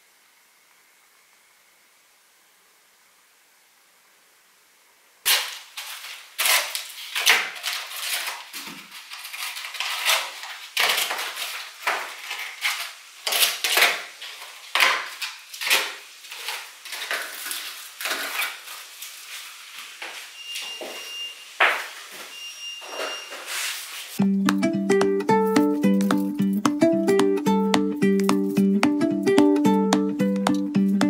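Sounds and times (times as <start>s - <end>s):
faint hiss: 0.0s - 6.9s.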